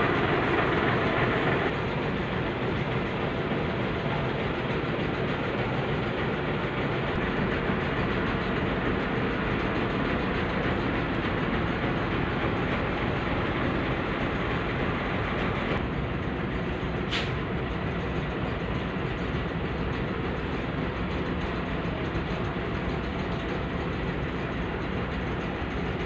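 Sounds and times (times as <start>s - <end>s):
heavy road traffic: 0.0s - 26.0s
brief hiss: 17.1s - 17.4s.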